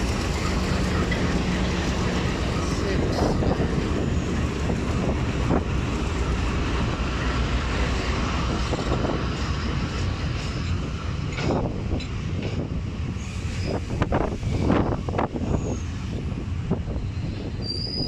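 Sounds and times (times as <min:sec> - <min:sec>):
wagons rolling past: 0:00.0 - 0:04.7
diesel locomotive engines rumbling: 0:00.0 - 0:18.0.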